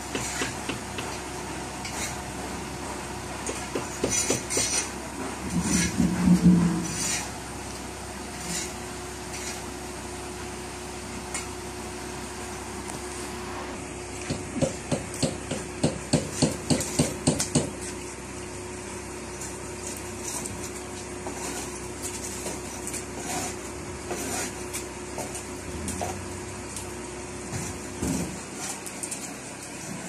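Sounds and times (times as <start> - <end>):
scraper scraping hull: 4.0 - 7.4, 20.2 - 26.3.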